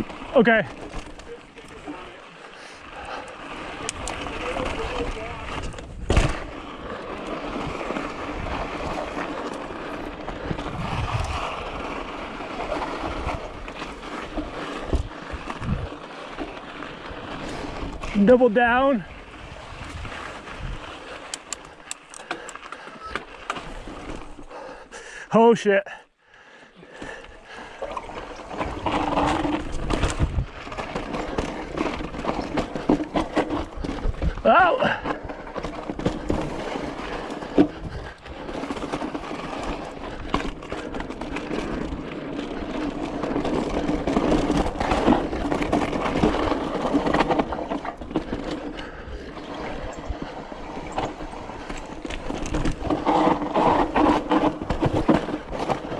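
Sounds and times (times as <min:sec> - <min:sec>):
bike tyres on dirt: 0:00.0 - 0:55.9
wind rushing over microphone: 0:10.4 - 0:11.8, 0:19.2 - 0:21.0.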